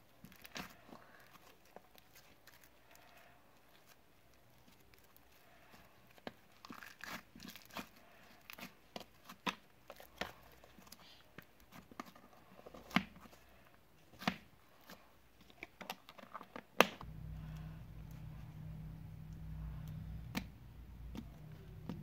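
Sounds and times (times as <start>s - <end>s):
slime squishing with wet pops: 0.1s - 12.2s
low steady hum: 17.0s - 22.0s.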